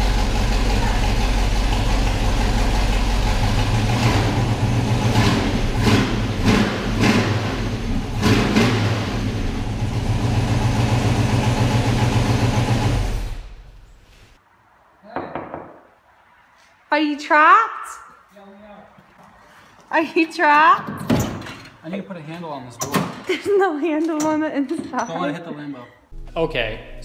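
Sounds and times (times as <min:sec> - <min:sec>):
car engine idling and revving: 0:00.0 - 0:13.9.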